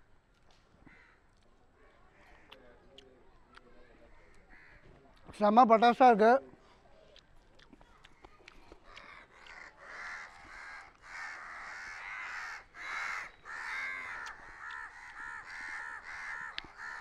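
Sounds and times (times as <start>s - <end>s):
crows cawing: 0.8s - 2.7s, 4.2s - 4.9s, 8.9s - 17.0s.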